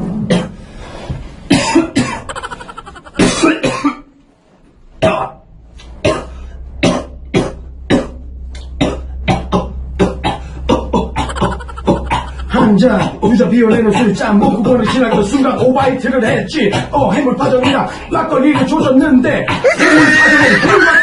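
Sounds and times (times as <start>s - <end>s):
man coughing: 1.5s - 4.1s, 6.1s - 14.2s.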